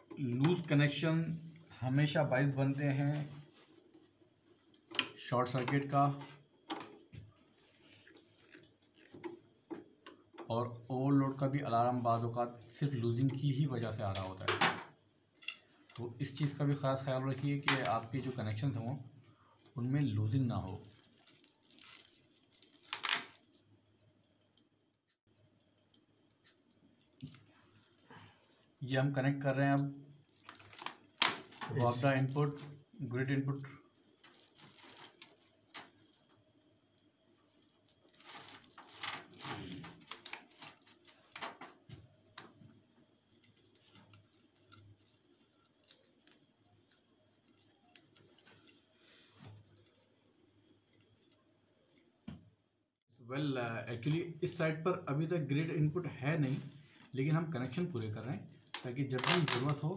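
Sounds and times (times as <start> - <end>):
cable in plastic conduit rustling: 20.6 - 24.6, 29.7 - 52.4, 55.6 - 59.9.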